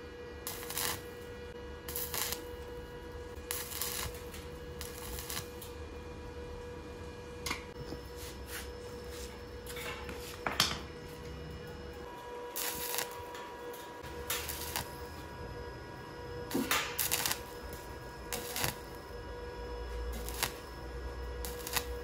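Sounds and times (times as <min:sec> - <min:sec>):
steady tone and low hum: 0:00.0 - 0:22.0
welding arc crackling: 0:00.4 - 0:05.8, 0:11.9 - 0:22.0.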